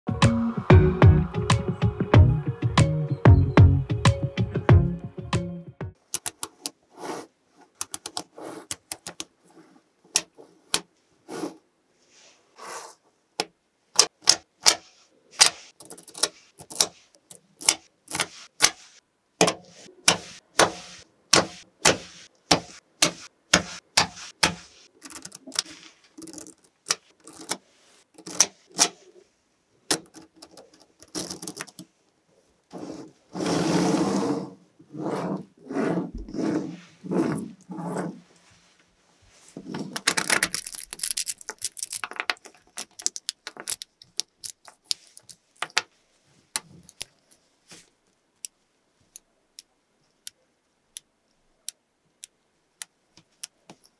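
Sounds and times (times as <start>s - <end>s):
magnetic balls clicking together: 40.0s - 45.9s.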